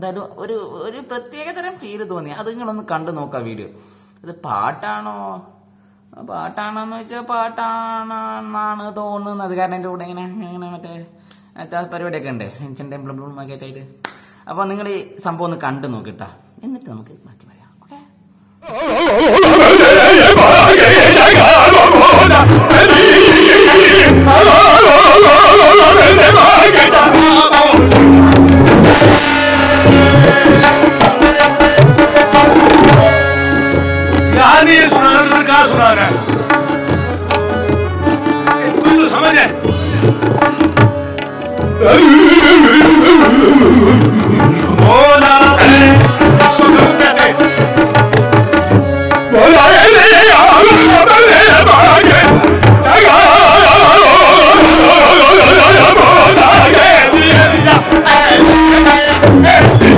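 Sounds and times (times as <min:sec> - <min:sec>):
person singing wavering voice: 0:18.6 - 0:32.0, 0:41.8 - 0:47.7
tabla strokes: 0:18.6 - 0:59.9
harmonium: 0:19.7 - 0:59.9.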